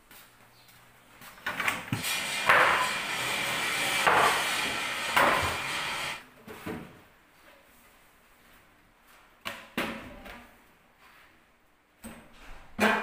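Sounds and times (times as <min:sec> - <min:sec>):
rough scraping or sliding: 0:01.9 - 0:06.2.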